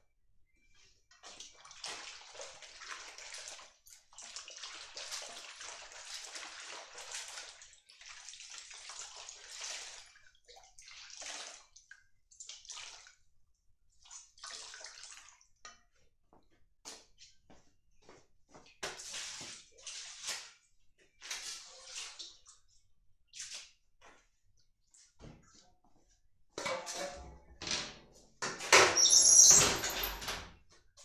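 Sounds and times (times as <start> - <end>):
water sloshing in metal basin: 1.2 - 13.2, 13.9 - 15.9, 18.8 - 23.8.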